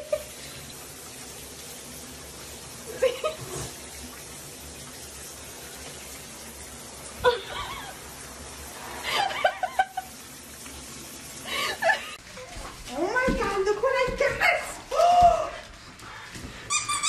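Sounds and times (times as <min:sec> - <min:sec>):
shower spray on bathtub floor: 0:00.0 - 0:17.0
person laughing: 0:02.9 - 0:03.6, 0:07.2 - 0:08.0, 0:09.1 - 0:10.1.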